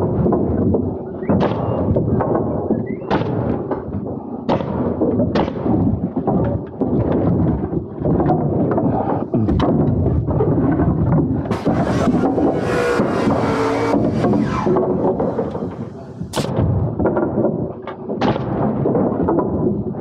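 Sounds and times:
steady rumble: 11.5s - 16.6s
nail gun shots: 11.5s - 16.7s.

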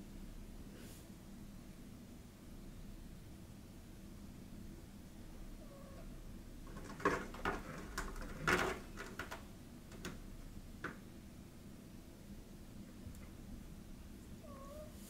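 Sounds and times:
knocks and clatters: 6.6s - 10.2s.

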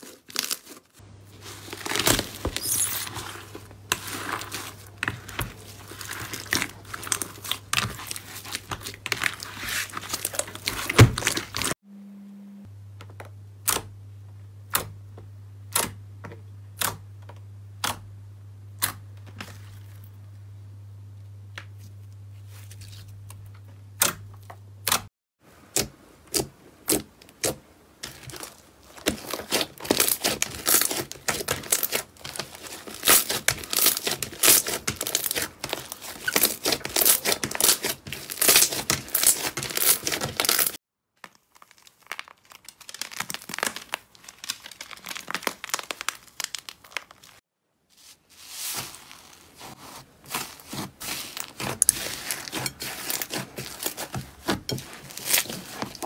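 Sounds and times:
low steady hum: 1.0s - 39.8s
slime popping and crackling: 1.7s - 11.7s, 26.3s - 47.4s, 50.3s - 56.0s.

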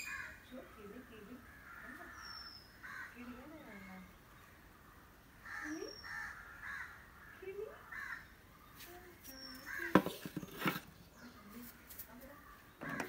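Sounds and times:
crows cawing: 0.0s - 8.4s, 9.7s - 10.1s, 12.8s - 13.0s.

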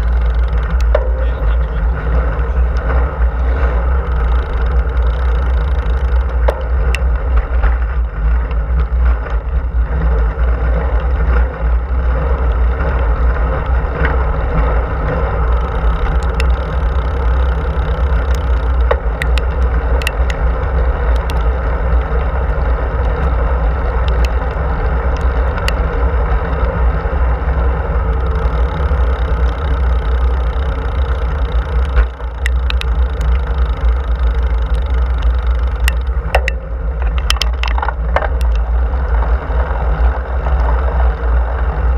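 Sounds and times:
wind buffeting microphone: 0.0s - 41.9s
faint clicks: 15.5s - 20.4s, 21.1s - 22.2s, 28.0s - 38.7s.

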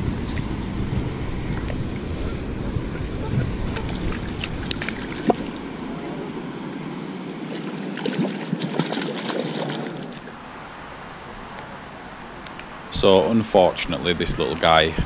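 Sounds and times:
net splashing in water: 7.4s - 10.3s.

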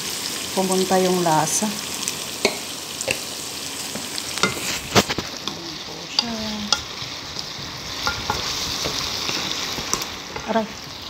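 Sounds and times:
chicken sizzling in oil: 0.0s - 11.0s
utensil scraping and knocking pan: 4.4s - 5.6s, 6.2s - 9.6s.

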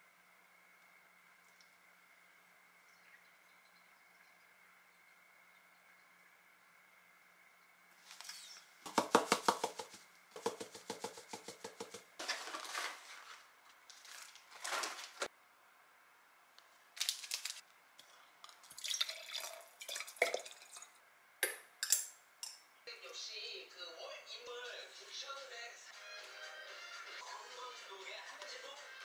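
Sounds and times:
rustling: 8.0s - 15.3s
liquid pouring: 18.4s - 21.0s.

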